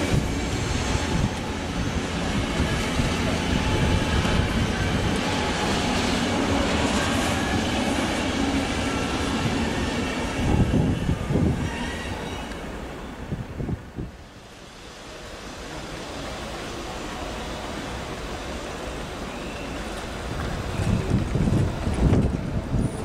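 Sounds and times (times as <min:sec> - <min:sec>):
train wheels clattering on rails: 0:18.7 - 0:23.0.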